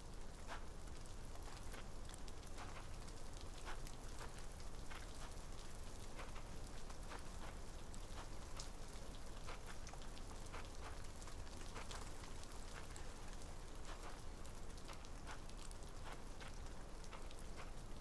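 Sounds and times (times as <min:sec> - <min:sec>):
raindrops ticking: 0:00.0 - 0:18.0
steady rain falling: 0:00.0 - 0:18.0.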